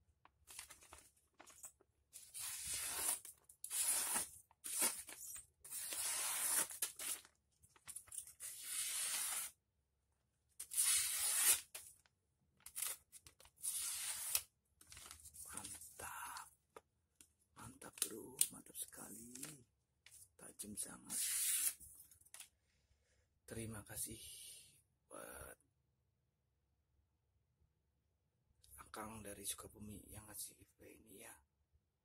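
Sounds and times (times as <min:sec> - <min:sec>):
knife slicing paper: 0:02.2 - 0:07.3, 0:08.3 - 0:09.6, 0:10.6 - 0:11.8, 0:13.6 - 0:14.5.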